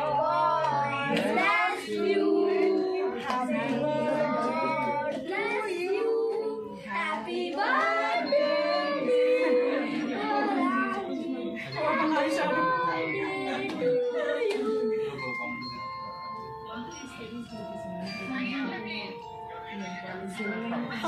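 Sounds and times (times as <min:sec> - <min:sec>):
child singing: 0:00.0 - 0:14.9
people singing: 0:00.0 - 0:15.6.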